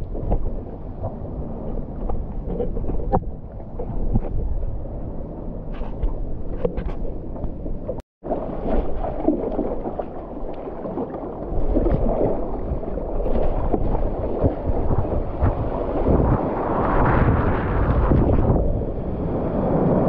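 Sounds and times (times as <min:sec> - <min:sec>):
water splashing against paddleboard: 0:05.8 - 0:16.4
wind buffeting microphone: 0:11.3 - 0:20.0.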